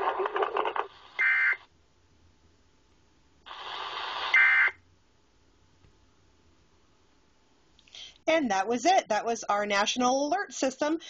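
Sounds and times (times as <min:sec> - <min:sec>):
harsh static noise: 0:00.0 - 0:01.7, 0:03.4 - 0:04.9.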